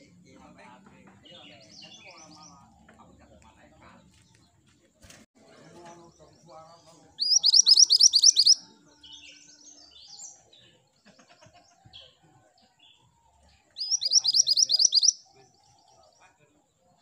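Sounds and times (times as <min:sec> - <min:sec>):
bird chirps: 0:05.9 - 0:10.8, 0:13.7 - 0:16.4
bird trilling: 0:07.2 - 0:08.6, 0:13.8 - 0:15.2.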